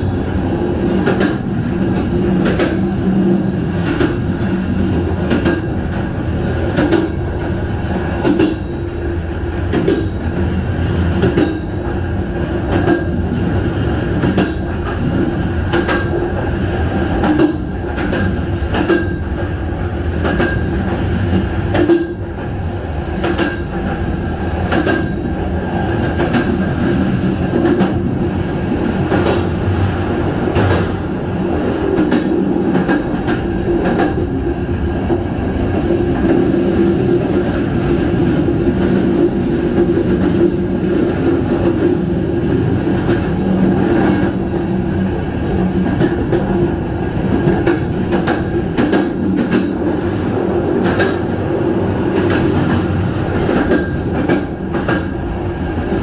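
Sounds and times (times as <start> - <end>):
train rumbling: 0.0 - 56.0.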